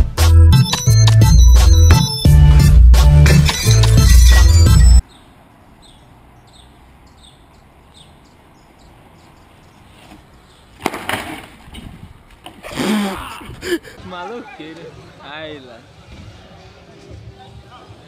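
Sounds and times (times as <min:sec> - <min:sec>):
person crying out: 0:12.7 - 0:14.0.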